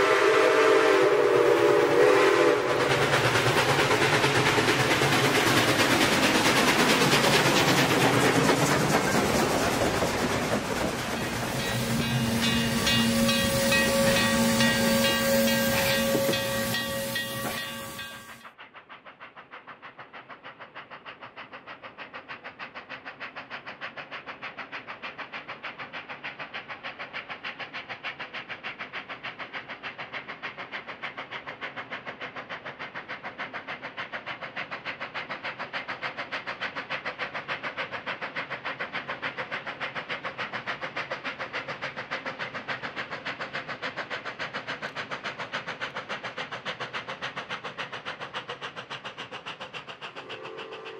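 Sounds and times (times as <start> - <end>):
steam train whistle chord: 0.0 - 2.8, 11.4 - 18.4, 50.2 - 50.9
steam train rhythmic chuffing: 0.0 - 50.9.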